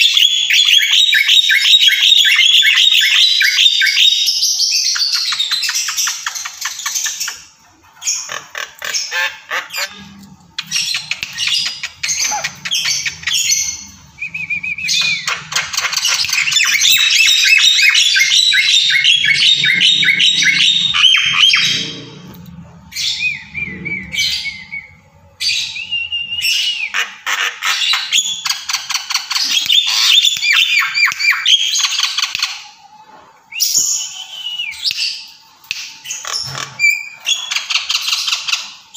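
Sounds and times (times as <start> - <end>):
mynas chattering: 8.3 - 17.4.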